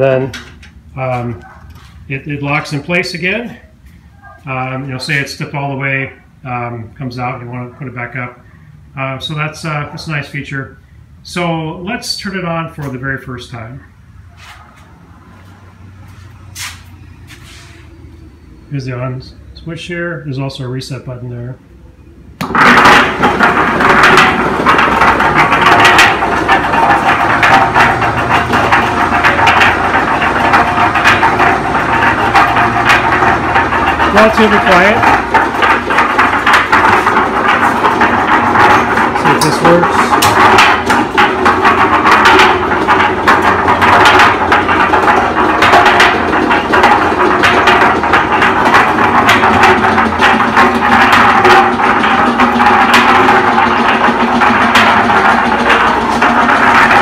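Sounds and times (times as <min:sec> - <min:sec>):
mixer drum clacks: 0:00.0 - 0:03.7, 0:06.4 - 0:10.5, 0:22.4 - 0:57.0
cement mixer motor hum: 0:22.4 - 0:57.0.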